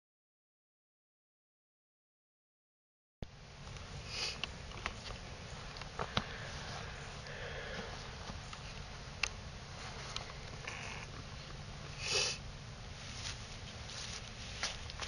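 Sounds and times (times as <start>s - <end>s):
camcorder background hiss: 3.3s - 15.0s
breath near microphone: 6.0s - 8.2s.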